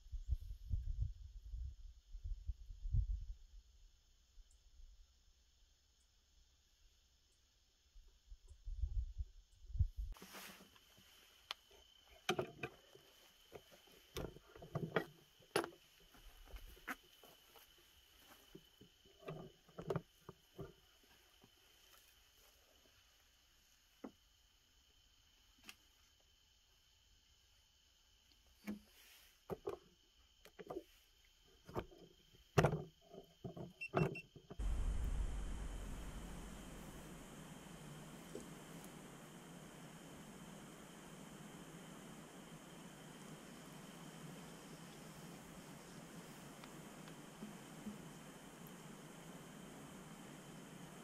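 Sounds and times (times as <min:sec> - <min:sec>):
soft rustling: 0:10.2 - 0:12.2
low rumble: 0:34.6 - 0:39.1
steady rush of noise: 0:34.6 - 0:51.0.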